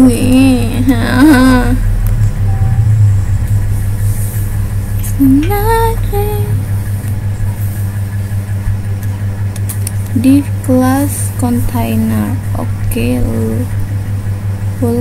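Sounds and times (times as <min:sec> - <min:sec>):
woman murmuring: 0:00.0 - 0:03.0
steady low hum: 0:00.0 - 0:15.0.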